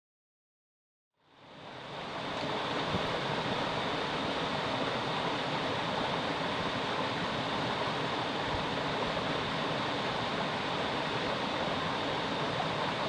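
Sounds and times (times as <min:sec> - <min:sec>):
stream rushing over rocks: 0:01.4 - 0:13.0.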